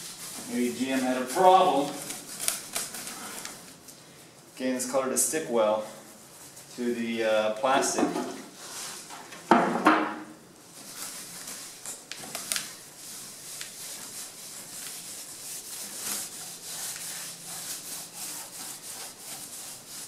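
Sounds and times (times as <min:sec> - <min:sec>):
gloved hands scrubbing plastic: 0:00.0 - 0:03.8, 0:10.7 - 0:20.0.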